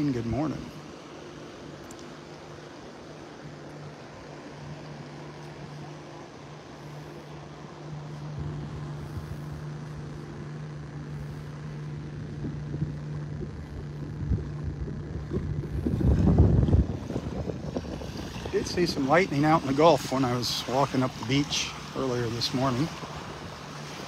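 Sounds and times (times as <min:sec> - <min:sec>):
motorboat engine humming: 0:00.0 - 0:24.0
wind buffeting microphone: 0:08.1 - 0:24.0.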